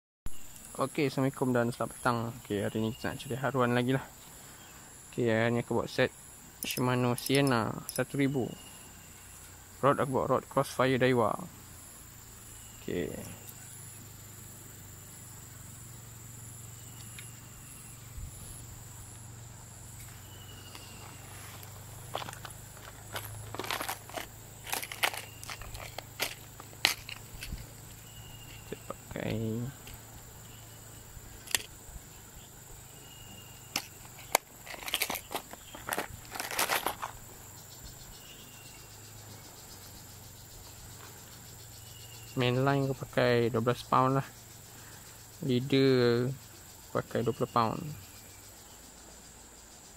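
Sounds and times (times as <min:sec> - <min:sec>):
insects chirping: 0:00.3 - 0:49.9
handling rustle and clatter: 0:06.6 - 0:08.2, 0:20.0 - 0:28.8, 0:31.4 - 0:31.8, 0:33.7 - 0:37.3.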